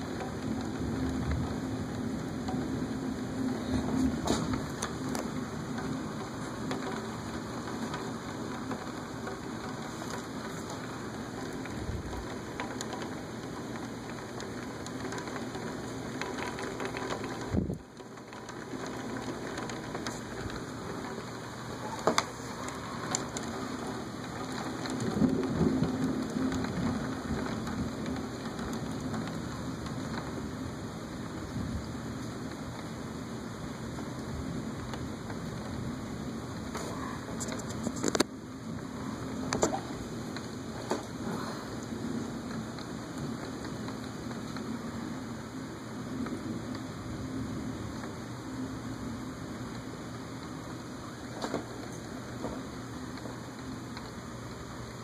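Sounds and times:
steady rain: 0.0 - 55.0
rolling thunder: 24.6 - 29.3.

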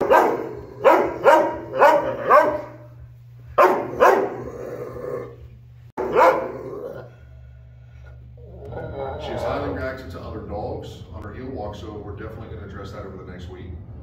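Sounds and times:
dog barking: 0.0 - 2.9, 3.6 - 4.6, 6.0 - 7.0.

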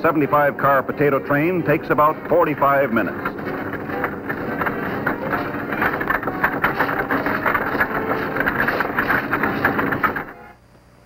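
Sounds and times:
machine clatter and rumble: 0.0 - 10.4.

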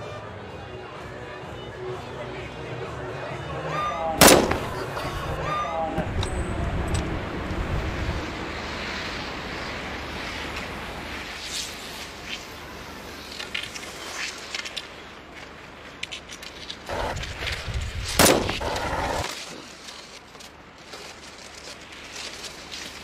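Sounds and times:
loud sharp bang: 4.2 - 5.5, 18.2 - 19.2.

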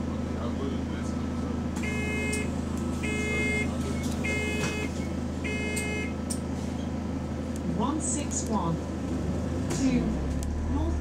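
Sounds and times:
bus engine idling: 0.0 - 11.0
electronic beeps: 1.9 - 6.1.

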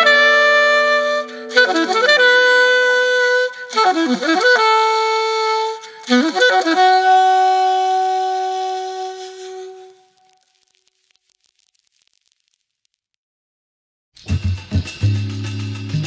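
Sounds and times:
solo melody instrument: 0.0 - 10.3.

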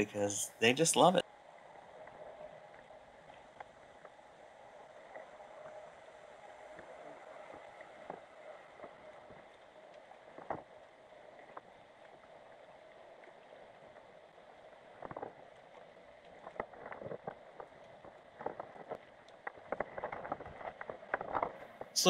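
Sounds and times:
underwater clicks and knocks: 10.3 - 10.7, 15.0 - 15.4, 16.2 - 22.0.

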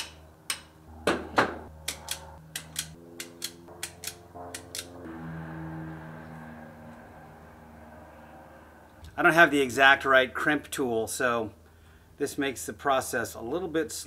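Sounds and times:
metallic crimping clicks: 1.8 - 5.0.

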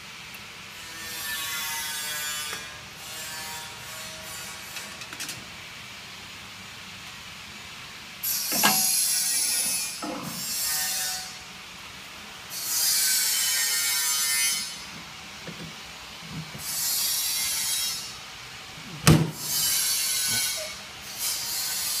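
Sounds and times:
metal plates scraping on wood: 8.4 - 10.5
metal knocks: 8.5 - 8.9.

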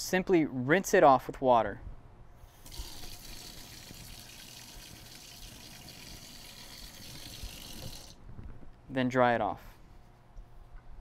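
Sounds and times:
faucet running into metal sink: 2.6 - 8.2.

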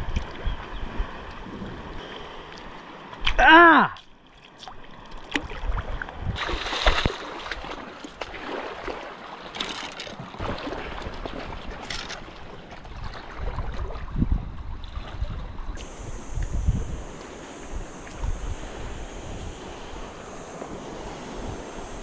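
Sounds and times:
wind gusts on microphone: 10.4 - 22.0
seawater splashing: 15.8 - 22.0.

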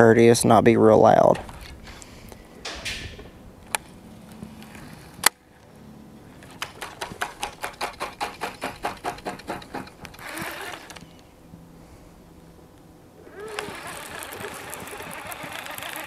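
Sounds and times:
fishing reel clicking: 13.3 - 16.0.

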